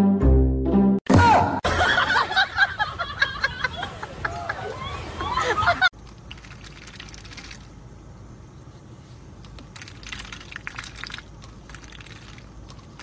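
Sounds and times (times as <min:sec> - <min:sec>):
duck bill clicking in water cup: 0:06.0 - 0:07.7, 0:09.5 - 0:13.0.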